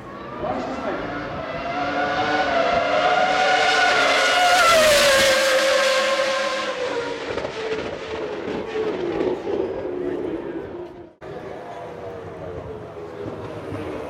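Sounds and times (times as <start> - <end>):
racing car passing at speed: 0.1 - 10.1.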